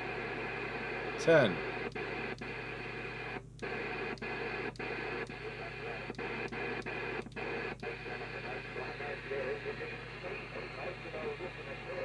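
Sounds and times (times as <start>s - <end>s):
radio receiver hissing: 0.0s - 12.0s.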